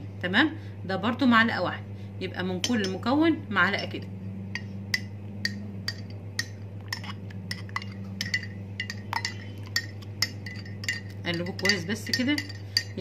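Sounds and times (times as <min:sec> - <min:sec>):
steady low hum: 0:00.0 - 0:13.0
spoon clinking in glass mug: 0:04.6 - 0:13.0.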